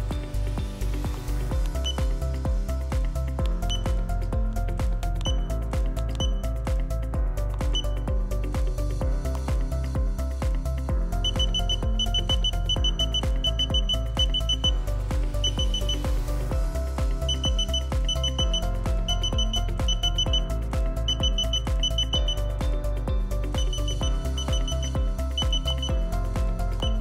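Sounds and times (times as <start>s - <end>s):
music with steady bass beat: 0.0s - 27.0s
high beeping figure: 11.3s - 14.7s, 15.4s - 16.0s, 17.3s - 22.4s, 23.6s - 26.1s.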